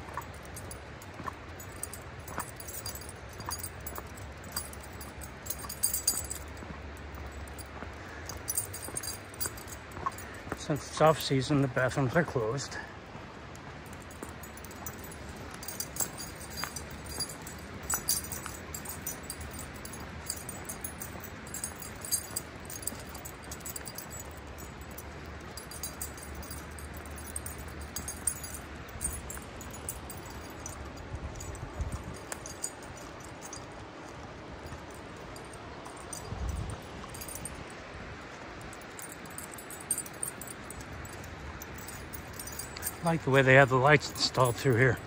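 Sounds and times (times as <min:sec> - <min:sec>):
footsteps on pavement: 0:00.0 - 0:11.3, 0:13.1 - 0:37.5
light metallic jingling: 0:00.0 - 0:45.0
outdoor background hiss: 0:00.0 - 0:45.0.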